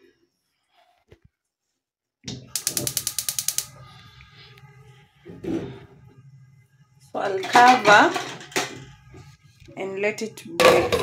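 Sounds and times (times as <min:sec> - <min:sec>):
gas burner hissing: 0:02.4 - 0:06.0
spark igniter clicking: 0:02.5 - 0:03.8.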